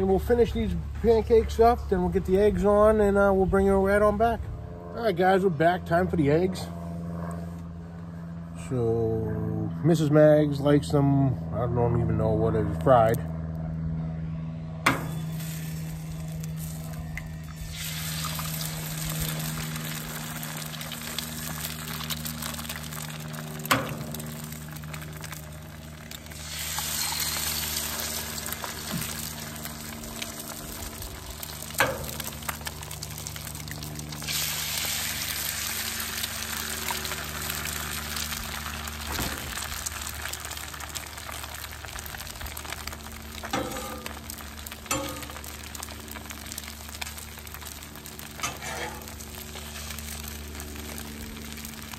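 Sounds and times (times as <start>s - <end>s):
eggs sizzling on griddle: 14.9s - 51.9s.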